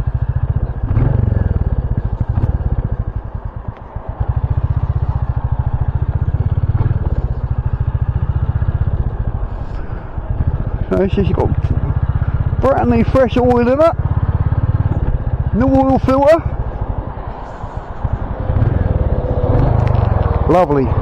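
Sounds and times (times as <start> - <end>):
motorcycle engine pulsing beat: 0.0 - 9.1.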